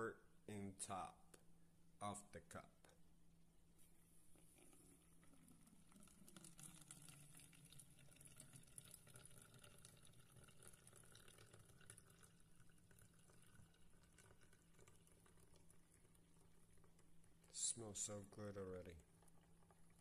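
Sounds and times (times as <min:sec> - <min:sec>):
trickle of water pouring: 0:04.3 - 0:20.0.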